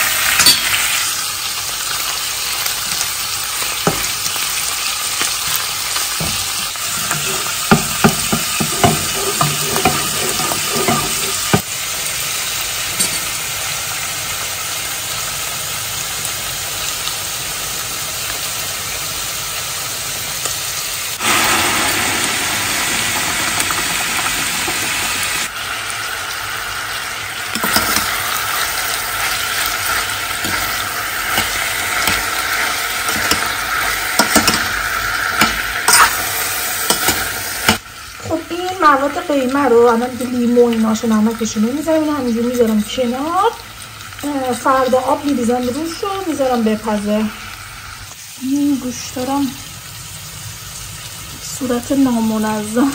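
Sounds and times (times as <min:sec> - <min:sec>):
meat and onions sizzling in pan: 0:00.0 - 0:52.9
spatula scraping a pan: 0:06.8 - 0:11.6
water poured into a pot: 0:21.2 - 0:26.6.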